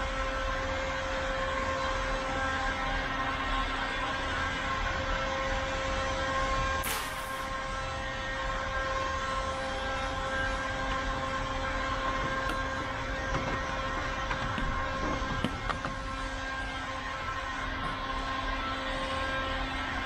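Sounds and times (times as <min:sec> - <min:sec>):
short hiss: 0:06.8 - 0:07.4
steady machine hum: 0:07.4 - 0:20.0.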